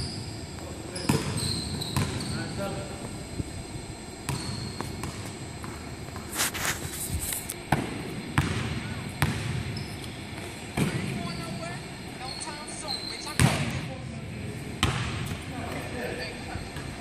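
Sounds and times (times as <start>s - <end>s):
shoe scuffing: 6.1s - 7.7s
basketball bouncing on wooden floor: 7.7s - 9.6s.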